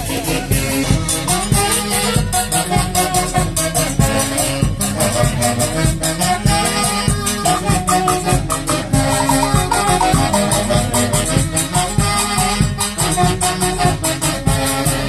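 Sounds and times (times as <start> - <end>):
folk band playing dance music: 4.6 - 15.0
saxophones: 7.0 - 11.5
harp: 7.5 - 11.2.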